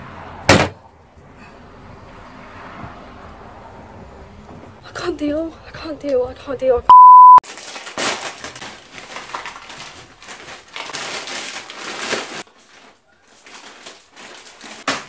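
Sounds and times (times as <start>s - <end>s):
test-tone beep: 6.9s - 7.4s
chip bag crinkling: 7.4s - 15.0s.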